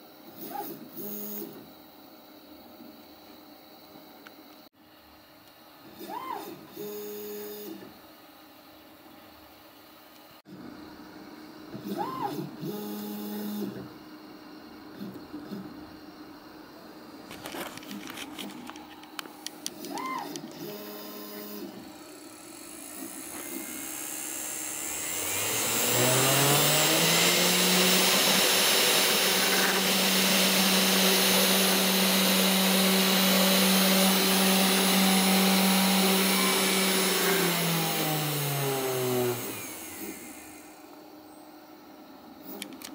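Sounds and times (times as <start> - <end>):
clicks and short whirs: 17.2 - 41.2, 42.3 - 42.9
spindle motor whining: 17.3 - 41.1.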